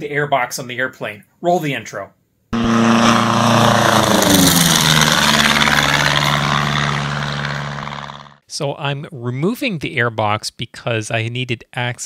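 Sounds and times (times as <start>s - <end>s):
propeller airplane flying past: 2.6s - 8.4s.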